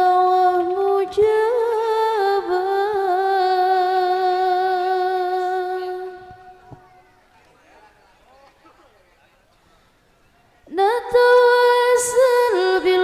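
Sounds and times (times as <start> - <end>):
woman singing: 0.0 - 6.7, 10.7 - 13.0.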